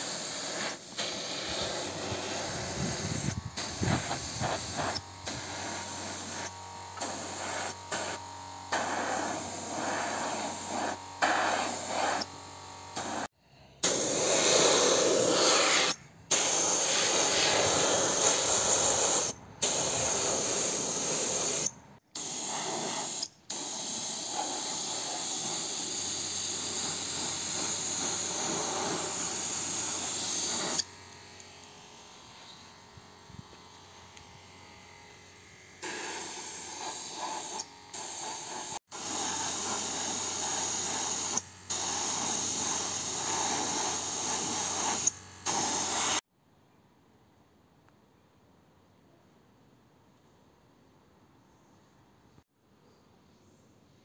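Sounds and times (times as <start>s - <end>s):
paint spray gun hissing: 0.0s - 31.7s, 35.8s - 46.3s.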